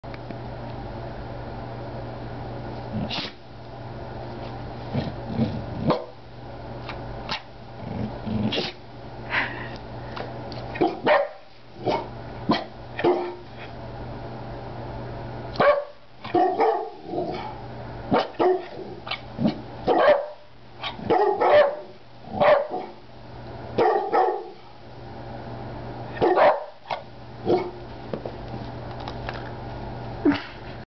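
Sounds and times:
steady low hum: 0:00.0 - 0:30.8
dog barking: 0:05.9 - 0:06.2, 0:10.8 - 0:13.4, 0:15.6 - 0:17.5, 0:18.1 - 0:18.8, 0:19.9 - 0:23.0, 0:23.8 - 0:24.6, 0:26.2 - 0:27.8.

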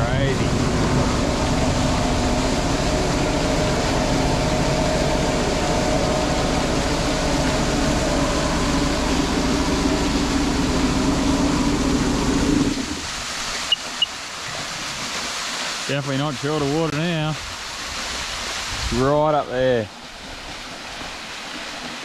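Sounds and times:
jet ski engine droning: 0:00.0 - 0:14.8, 0:18.9 - 0:22.0
water wash: 0:00.0 - 0:22.0
wind noise: 0:17.4 - 0:19.2.

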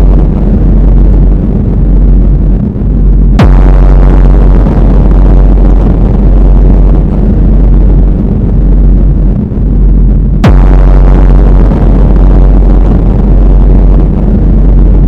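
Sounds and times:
low rumbling drone: 0:00.0 - 0:15.0
sharp hits with downward sweep: 0:03.4 - 0:08.1, 0:10.4 - 0:15.0.

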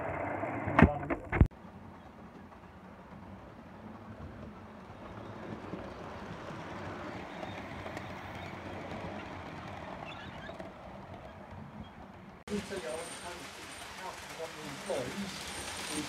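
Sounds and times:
model train rolling on track: 0:01.6 - 0:16.0.

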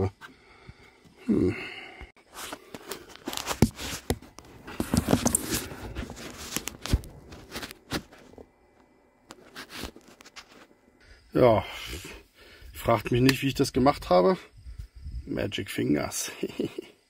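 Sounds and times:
filter material rustling and scraping: 0:02.2 - 0:08.5, 0:09.3 - 0:10.8.

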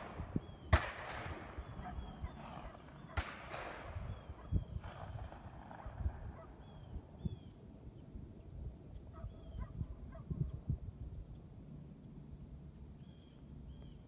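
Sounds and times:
wind buffeting microphone: 0:00.0 - 0:07.5
high insect trill: 0:00.0 - 0:14.0
birds chirping: 0:01.5 - 0:03.2.

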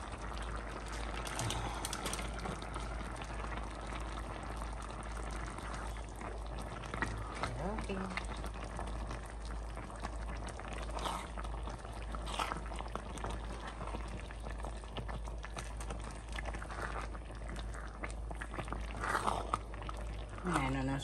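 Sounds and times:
soup bubbling in pot: 0:00.0 - 0:21.0.

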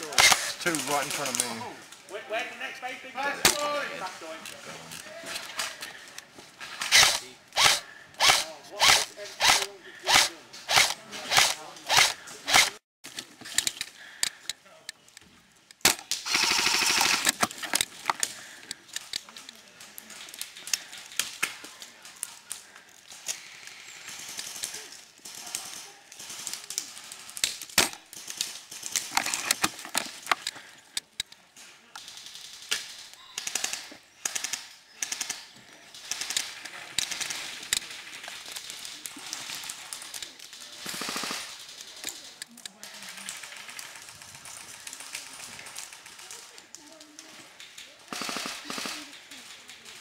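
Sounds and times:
airsoft guns firing bursts: 0:06.9 - 0:12.8, 0:16.2 - 0:17.5, 0:24.1 - 0:29.1, 0:32.0 - 0:40.1, 0:40.8 - 0:42.0, 0:48.0 - 0:49.2.

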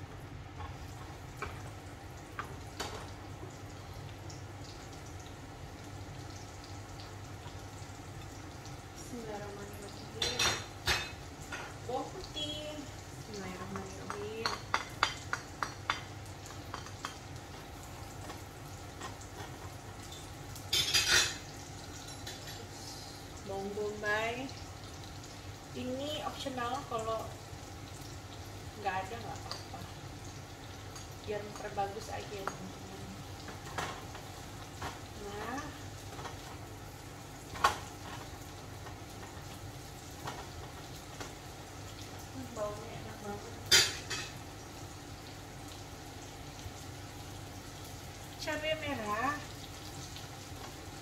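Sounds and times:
garlic sizzling in oil: 0:00.0 - 0:51.0
spatula clacking against a pan: 0:13.7 - 0:17.3.

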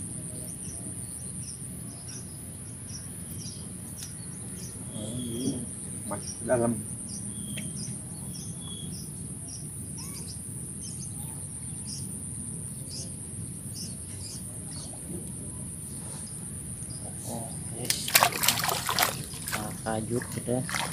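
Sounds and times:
bird chirps: 0:00.0 - 0:12.1.

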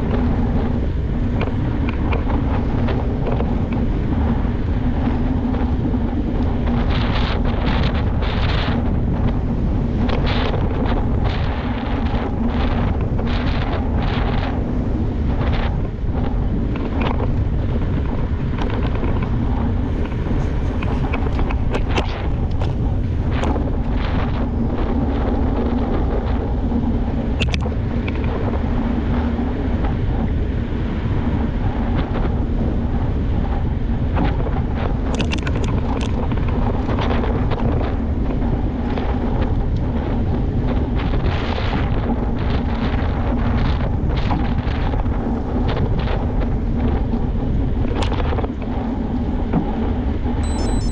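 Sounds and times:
low hum: 0:00.0 - 0:30.4, 0:50.2 - 0:50.9
wind buffeting microphone: 0:00.0 - 0:50.9.

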